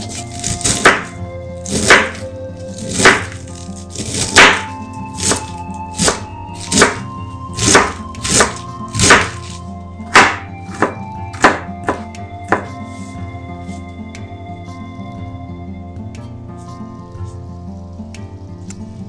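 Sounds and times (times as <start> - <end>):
knife cutting cabbage on board: 0.0 - 13.2
soft background music: 0.0 - 19.0.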